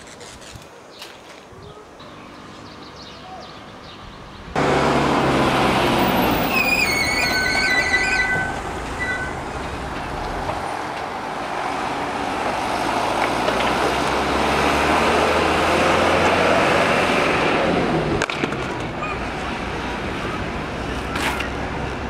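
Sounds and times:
wheels rolling on pavement: 4.5 - 22.0.

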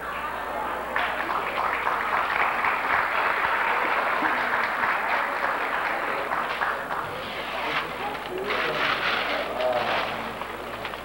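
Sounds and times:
audience applauding: 0.1 - 8.3.

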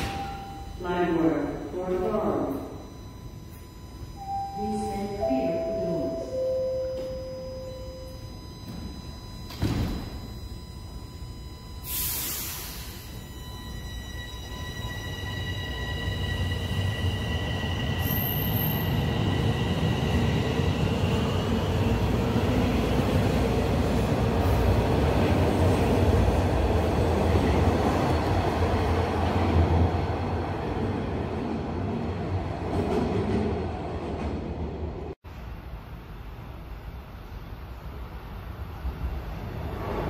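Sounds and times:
high steady tone: 0.0 - 28.6
subway train rumble: 0.0 - 40.0.

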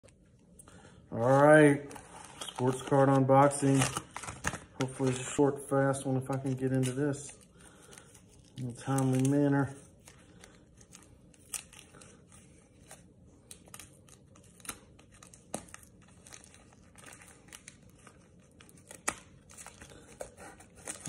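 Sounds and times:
paper crinkling and tearing: 1.2 - 21.0.

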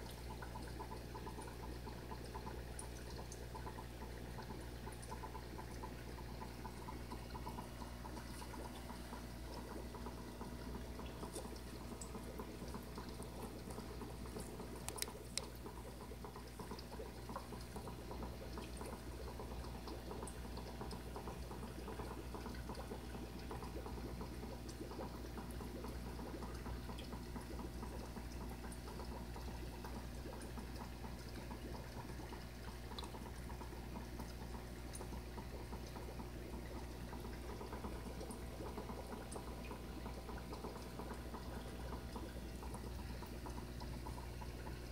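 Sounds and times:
water trickling: 0.0 - 44.9
small clicks: 14.8 - 15.6.

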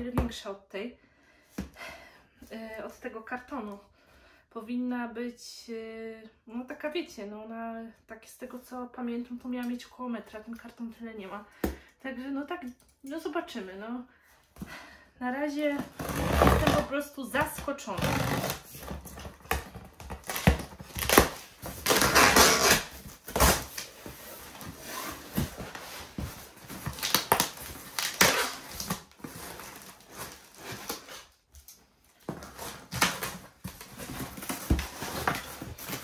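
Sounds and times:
cardboard ripping: 17.9 - 31.4, 32.2 - 36.0
cardboard flaps rustling: 18.0 - 31.3
scissors cutting packing tape: 18.3 - 23.9, 26.7 - 31.8.

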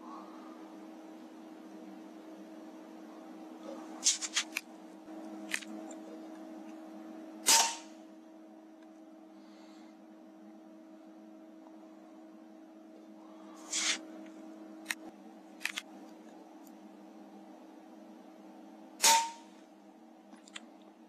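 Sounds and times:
low hum: 0.0 - 21.0
air rifle shot: 7.4 - 8.0, 19.0 - 19.5.

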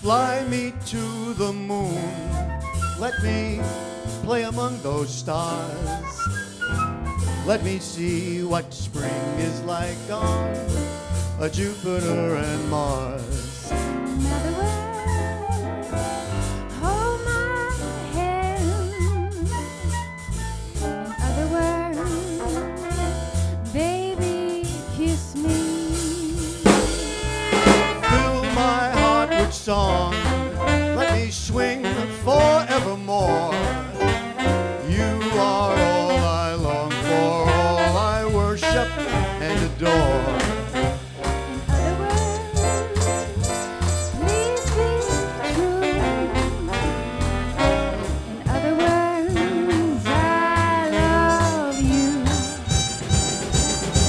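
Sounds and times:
swing band playing: 0.0 - 54.0
sharp drum hit: 26.3 - 29.2, 39.9 - 48.6, 51.0 - 54.0.

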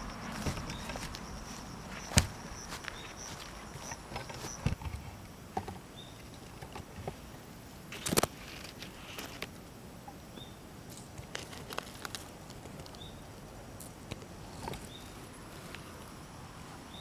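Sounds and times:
faint high chirps: 0.0 - 4.7
small clicks and rustles: 10.9 - 13.1.

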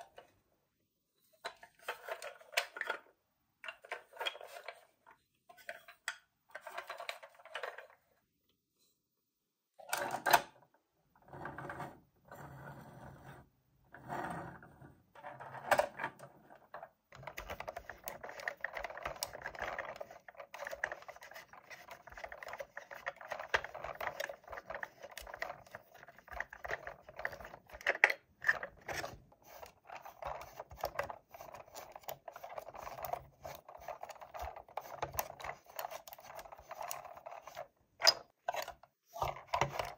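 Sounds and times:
plastic toy clicks and knocks: 1.5 - 4.9, 15.2 - 39.9
rapid small clicks and rattles: 16.7 - 39.9.

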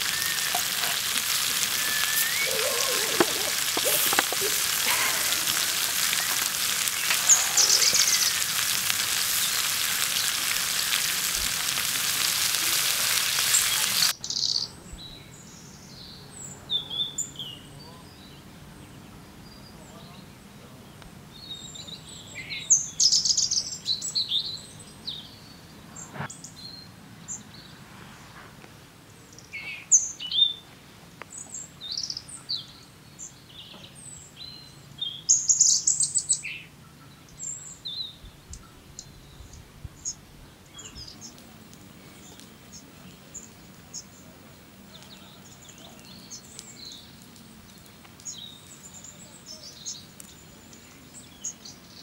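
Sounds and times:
bird trills: 0.0 - 8.6
songbirds chirping: 0.0 - 52.0.

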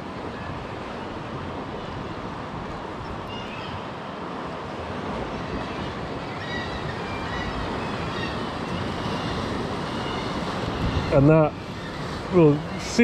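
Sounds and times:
wind on microphone: 0.0 - 13.0
waves washing against rocks: 3.9 - 13.0.

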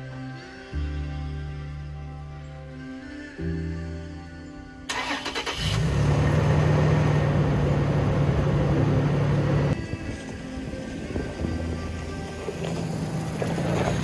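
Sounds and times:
car engine idling: 4.9 - 9.8.

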